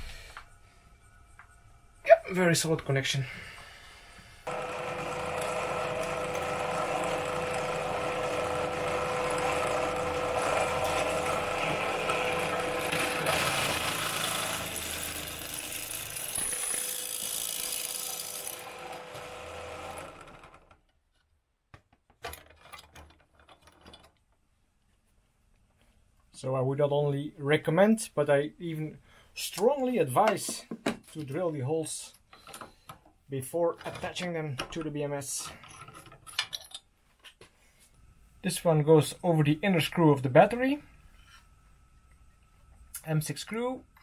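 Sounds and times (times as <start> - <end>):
drill press drilling copper: 4.5 - 20.8.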